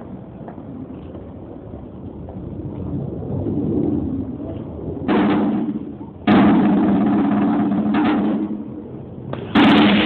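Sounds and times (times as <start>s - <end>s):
military band drumming: 5.1s - 8.6s.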